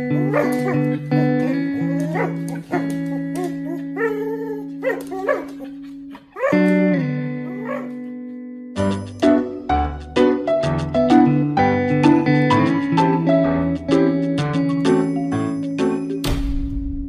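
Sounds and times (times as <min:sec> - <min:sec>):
husky vocal calls: 0:00.0 - 0:06.7
background music with sustained notes: 0:00.0 - 0:17.0.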